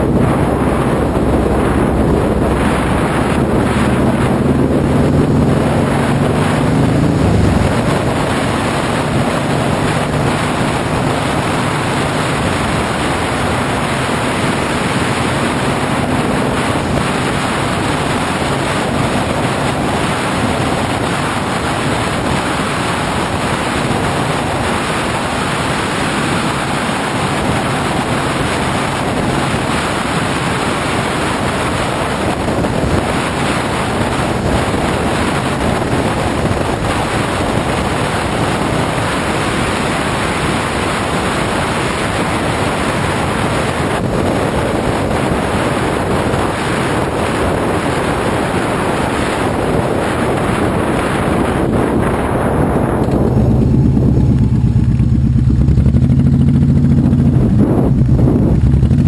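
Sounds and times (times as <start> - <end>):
vehicle engine hum: 0.0 - 59.0
wind rushing over microphone: 0.0 - 59.0.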